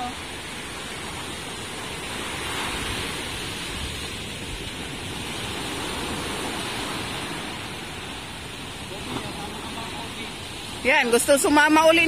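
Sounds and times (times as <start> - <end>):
surf breaking on beach: 0.0 - 12.0.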